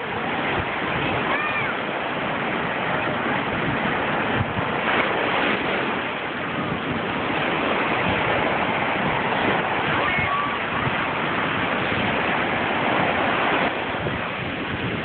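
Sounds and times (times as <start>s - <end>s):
small waves on sandy beach: 0.0s - 15.0s.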